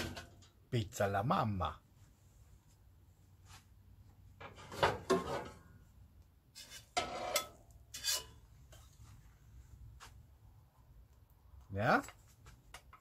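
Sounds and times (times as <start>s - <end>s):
spatula scraping pizza stone: 6.5s - 8.4s.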